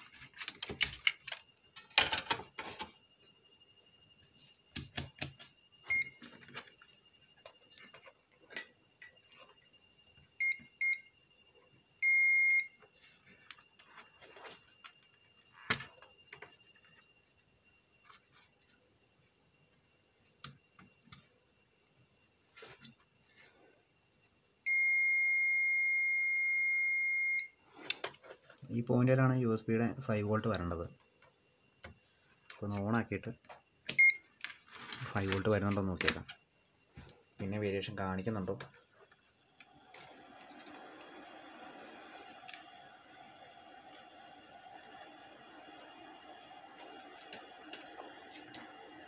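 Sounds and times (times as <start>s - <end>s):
multimeter continuity beeps: 4.8s - 7.8s, 10.4s - 14.1s, 24.7s - 27.7s, 33.7s - 34.3s, 39.6s - 49.0s.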